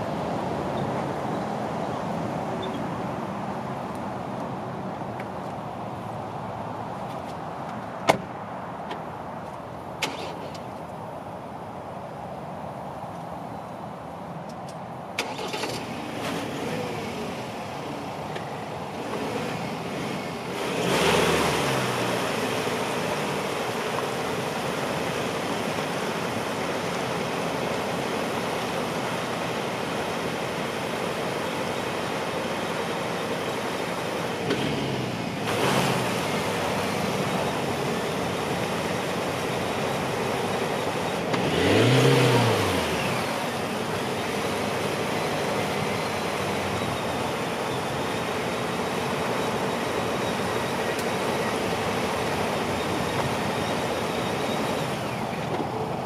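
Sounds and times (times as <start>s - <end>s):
truck engine revving: 18.9s - 23.4s, 34.5s - 56.0s
wheels spinning in mud: 19.0s - 56.0s.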